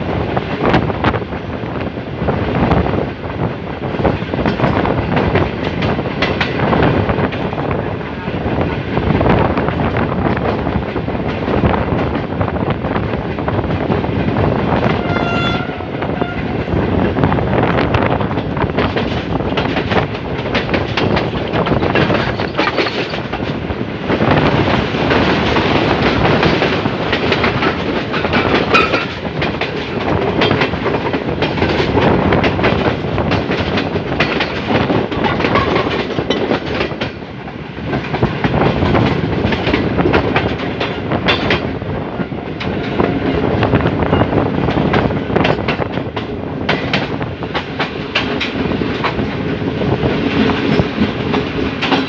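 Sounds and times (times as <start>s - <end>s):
train wheel and wind rush: 0.0s - 52.0s
wheels clattering over rails: 18.1s - 23.7s, 24.5s - 37.2s.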